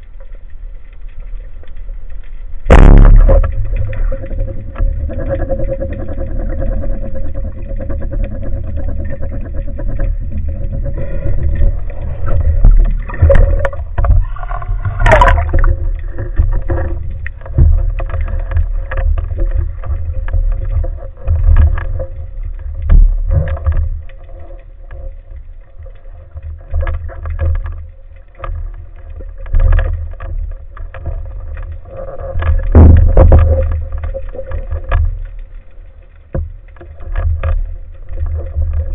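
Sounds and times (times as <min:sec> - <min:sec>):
surge of water noise: 0:00.0 - 0:38.9
underwater water rumble: 0:00.0 - 0:38.9.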